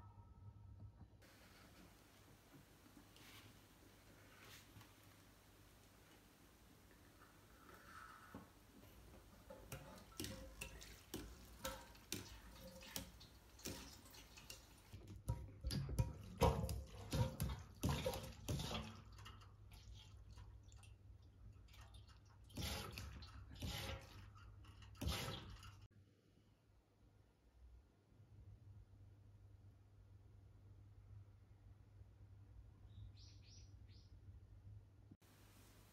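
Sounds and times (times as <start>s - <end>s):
hand pump bulb squeezing: 22.5s - 25.8s.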